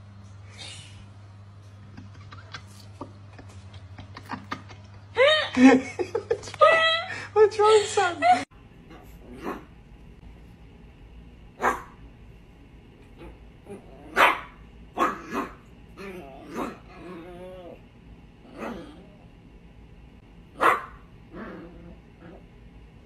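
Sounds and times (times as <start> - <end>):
small dog barking: 9.3 - 9.7, 11.6 - 12.0, 14.1 - 15.6, 20.6 - 21.0
dog growling: 15.0 - 17.8, 18.4 - 19.3, 21.3 - 22.5.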